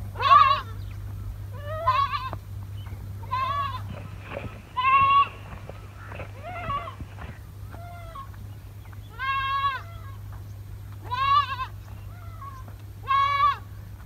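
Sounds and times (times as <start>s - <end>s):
young goat bleating: 0.2s - 0.8s, 1.5s - 2.4s, 3.2s - 8.4s, 9.1s - 10.2s, 11.0s - 13.7s.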